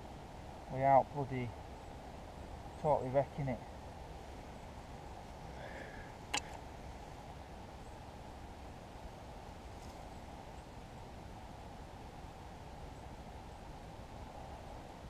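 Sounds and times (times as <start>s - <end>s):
faint low hiss: 0.0s - 15.0s
sharp snap: 6.3s - 6.6s.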